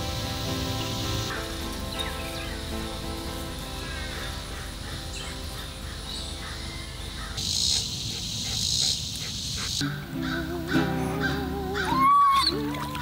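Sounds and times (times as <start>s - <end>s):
soft background music: 0.0s - 8.7s
insects buzzing: 0.0s - 13.0s.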